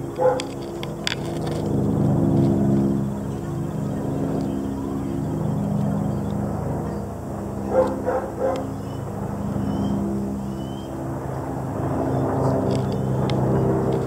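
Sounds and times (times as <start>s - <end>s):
low engine-like hum: 0.0s - 14.0s
dog barking: 0.2s - 0.5s, 7.7s - 8.7s.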